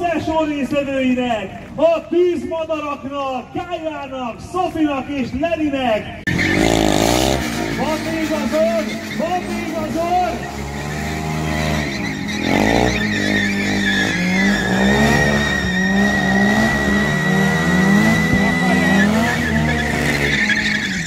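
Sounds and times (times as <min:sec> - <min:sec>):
car engine at high revs: 0:06.3 - 0:21.0
quad bike engine revving: 0:06.3 - 0:21.0
tyres squealing: 0:06.3 - 0:21.0.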